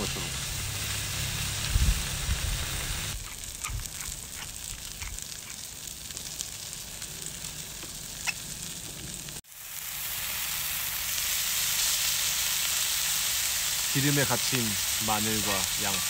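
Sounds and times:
pork sizzling on griddle: 0.0 - 16.0
pepper grinder ticks: 3.2 - 5.6.

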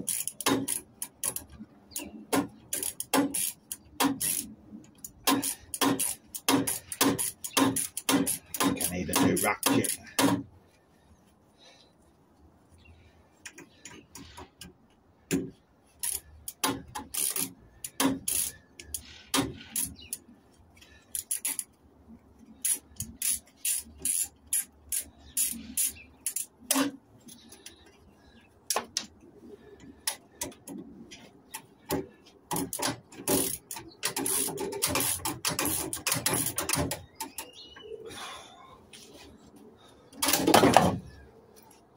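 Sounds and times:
hand tools clicking on metal: 0.0 - 10.4, 16.0 - 20.3, 21.1 - 21.8, 22.6 - 27.6, 31.5 - 37.5.

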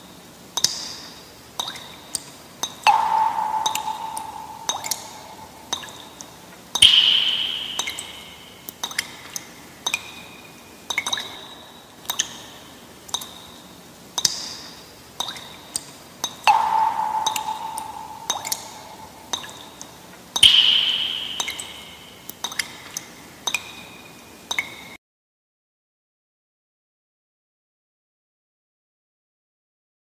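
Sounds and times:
water drops dripping with echo: 0.0 - 25.0
ringing plink: 2.6 - 6.2, 6.8 - 8.9, 16.2 - 19.8, 20.4 - 22.3.

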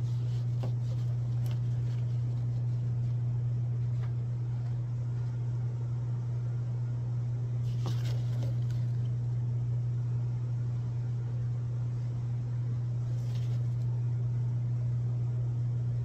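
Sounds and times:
low hum: 0.0 - 16.0.

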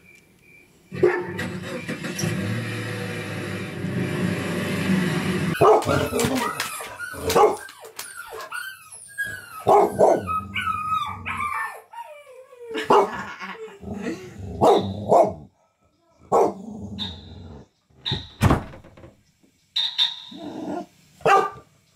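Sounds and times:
dog barking: 1.0 - 1.4, 5.5 - 8.5, 9.6 - 10.4, 12.8 - 13.2, 14.6 - 17.2, 21.2 - 21.7
dog whining: 5.5 - 13.1.

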